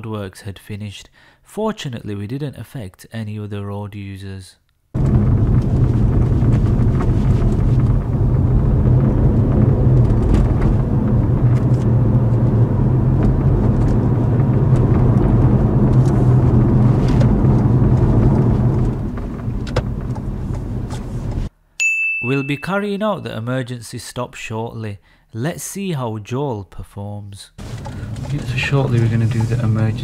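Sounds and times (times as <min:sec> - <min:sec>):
low hum: 0:05.0 - 0:21.5
road and tyre noise: 0:05.0 - 0:21.5, 0:27.6 - 0:30.0.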